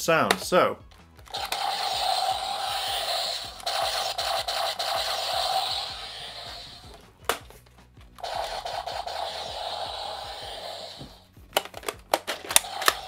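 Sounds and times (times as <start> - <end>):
toy blaster electronic sound effects: 1.3 - 6.9, 8.2 - 11.2, 12.3 - 13.0
sharp plastic clicks: 6.8 - 8.3, 11.5 - 13.0.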